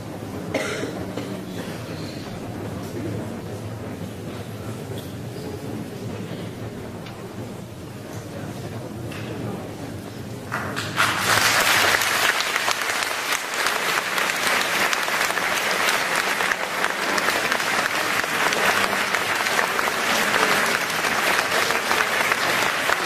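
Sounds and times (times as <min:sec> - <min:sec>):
crowd applauding: 0:10.5 - 0:23.0.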